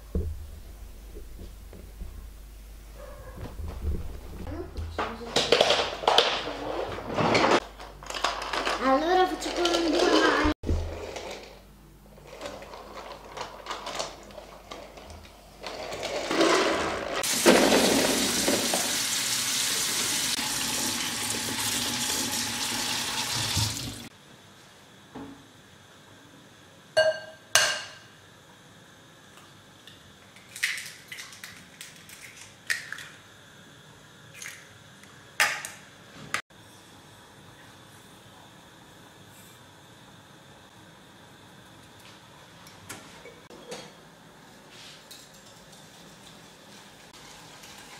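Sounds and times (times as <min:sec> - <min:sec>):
tap water running into a colander: 0:17.2 - 0:24.1.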